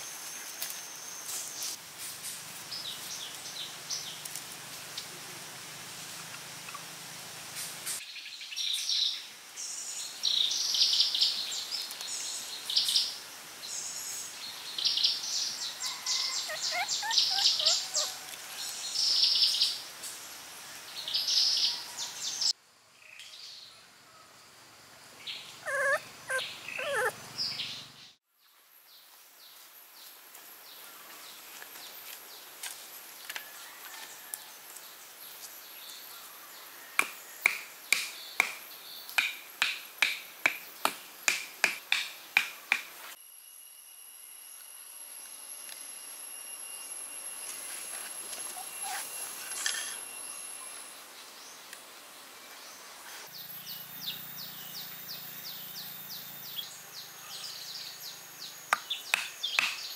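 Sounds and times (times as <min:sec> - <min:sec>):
faint hiss: 0:00.0 - 0:15.8, 0:18.1 - 0:26.2
animal whines: 0:15.8 - 0:18.2, 0:25.6 - 0:27.2, 0:48.4 - 0:50.1
animal high-pitched chirps: 0:16.1 - 0:18.2, 0:25.6 - 0:27.2, 0:48.4 - 0:50.1.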